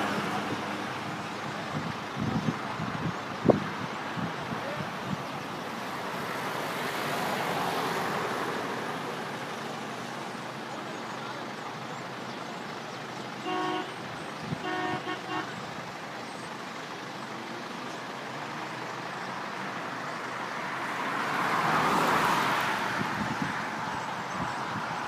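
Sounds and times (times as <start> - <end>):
road traffic noise: 0.0 - 25.0
car horn honking: 13.4 - 15.6.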